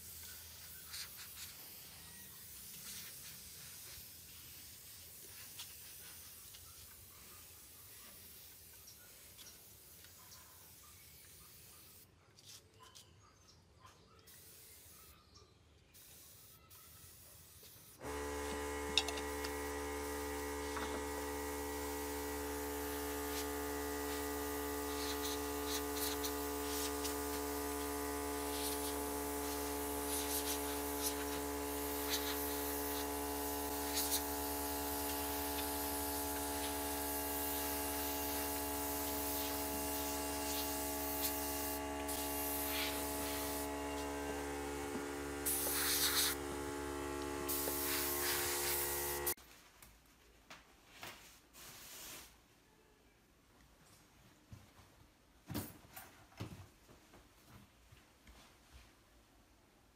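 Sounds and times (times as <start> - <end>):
spray gun hissing: 0.0 - 6.3, 16.0 - 49.4
air compressor humming: 18.0 - 49.4.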